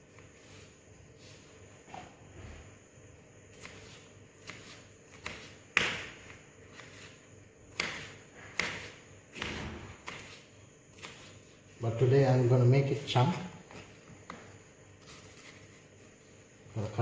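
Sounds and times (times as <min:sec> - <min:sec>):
knife chopping on cutting board: 0:03.5 - 0:07.0, 0:07.7 - 0:10.4.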